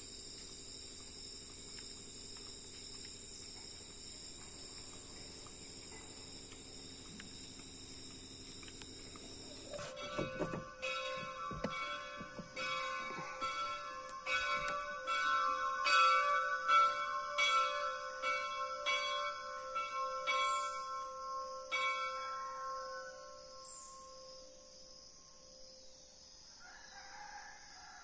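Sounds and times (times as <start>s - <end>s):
church bell ringing: 9.8s - 24.5s.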